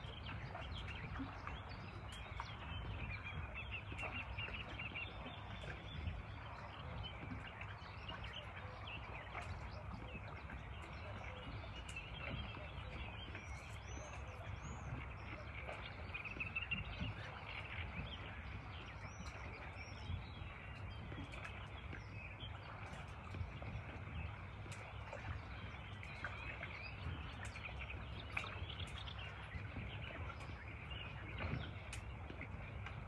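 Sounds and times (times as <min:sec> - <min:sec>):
steady low rumble: 0:00.0 - 0:33.0.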